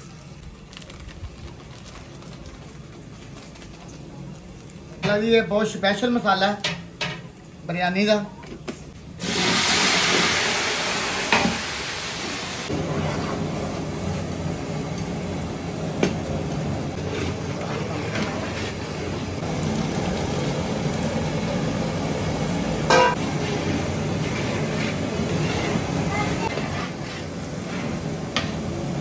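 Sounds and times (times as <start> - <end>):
sauce sizzling in a pot: 9.2 - 17.5.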